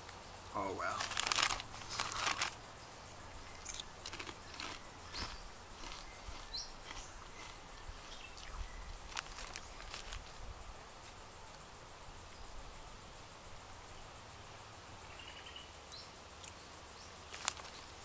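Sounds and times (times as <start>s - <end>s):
chip crunching: 0.9s - 2.6s, 3.5s - 7.6s
crisp packet crinkling: 0.9s - 2.6s, 3.6s - 7.5s, 9.1s - 10.3s, 17.3s - 17.8s.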